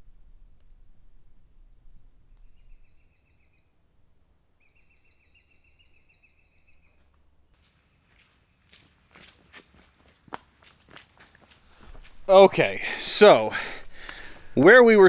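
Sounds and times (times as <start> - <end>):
bird trilling: 2.4 - 3.7, 4.6 - 7.0.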